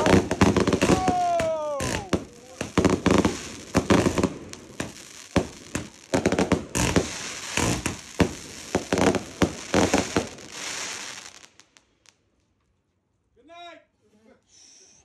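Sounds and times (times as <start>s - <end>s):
firework launch thumps and bursts: 0.0s - 11.3s
crackling firework stars hissing: 0.0s - 12.4s.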